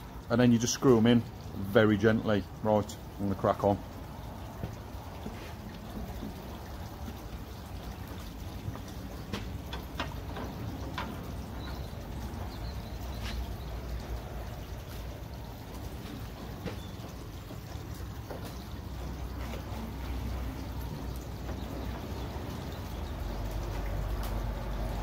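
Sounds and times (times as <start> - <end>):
light taps and clicks: 8.1 - 11.8.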